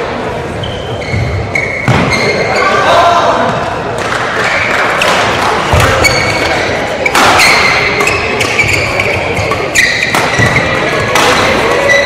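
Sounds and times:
shoes squeaking on court: 0.5 - 2.8, 4.4 - 12.0
rackets hitting shuttlecock: 1.6 - 2.3, 3.5 - 12.0.

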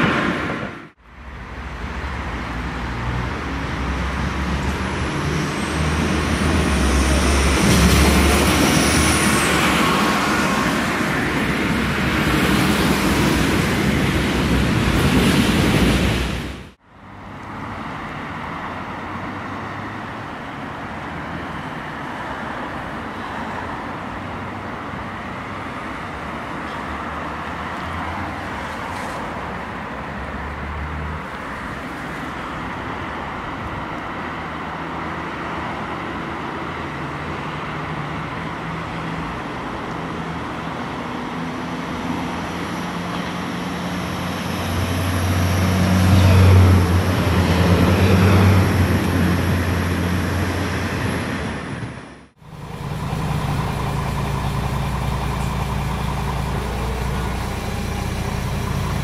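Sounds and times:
background traffic noise: 0.0 - 59.0
train engine drone: 35.0 - 59.0.

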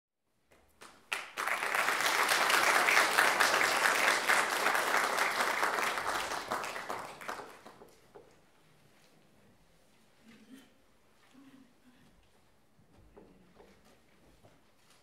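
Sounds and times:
audience applauding: 0.8 - 8.0.

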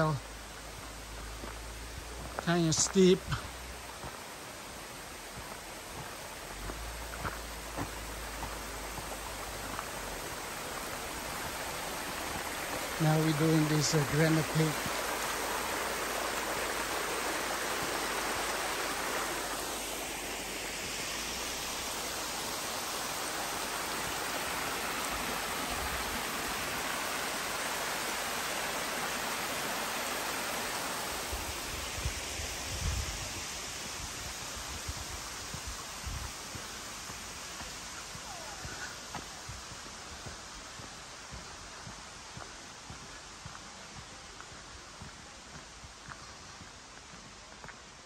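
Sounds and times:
water rushing over rocks: 0.0 - 44.0.

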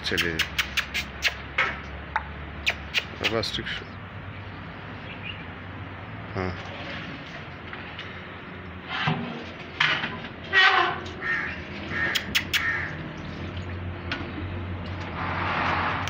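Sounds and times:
sharp clicks: 0.0 - 1.4, 2.2 - 3.4.

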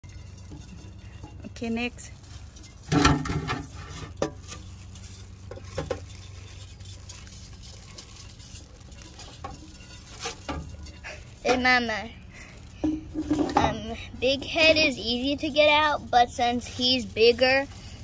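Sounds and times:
metal bucket knocking and scraping: 0.0 - 11.9, 12.7 - 15.0
plastic bag rustling: 0.0 - 18.0.

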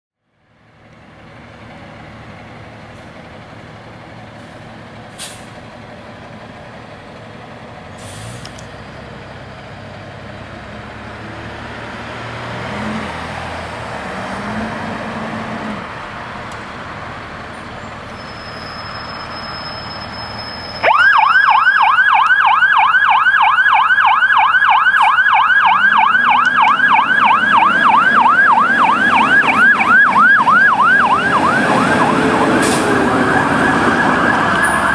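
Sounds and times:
fire engine revving: 0.4 - 34.9
siren yelping: 20.8 - 34.9.

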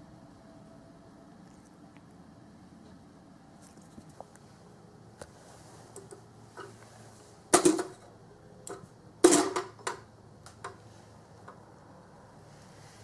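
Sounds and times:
plastic figurine clattering on tile: 7.6 - 8.0, 9.2 - 10.0.

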